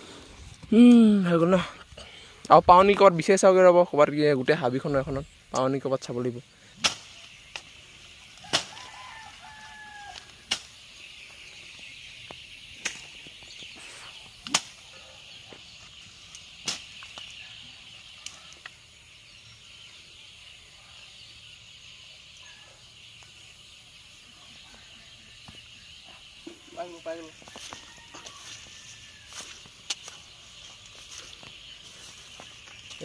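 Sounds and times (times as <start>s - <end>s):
insect drone: 0.0s - 33.0s
plant stems snapping: 6.8s - 7.7s, 8.4s - 8.9s, 10.0s - 10.8s, 12.8s - 13.1s, 14.4s - 14.8s.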